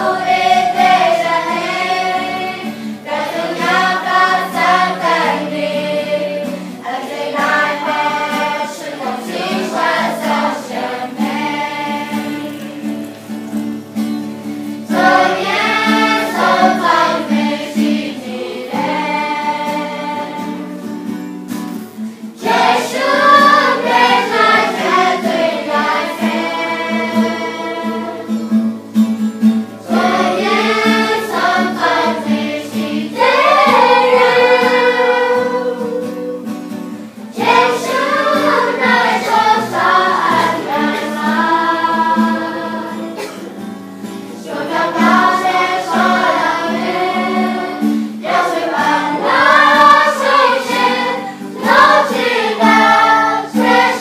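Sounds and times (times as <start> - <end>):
group of voices singing: 0.0 - 13.4, 14.6 - 20.9, 22.0 - 28.7, 29.7 - 54.0
sustained accompaniment: 21.8 - 54.0.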